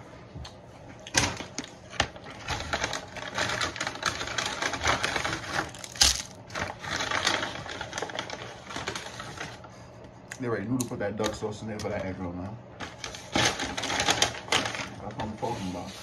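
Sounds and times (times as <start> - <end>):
paper bag rustling and crackling: 2.2 - 9.6, 12.9 - 16.0.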